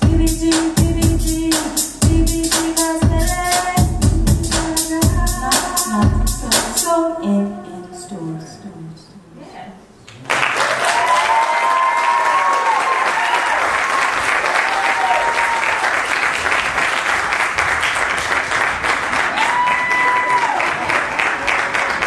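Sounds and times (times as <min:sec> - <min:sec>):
audience applause: 0:10.1 - 0:22.0
crowd whooping: 0:10.7 - 0:16.0, 0:19.3 - 0:21.0.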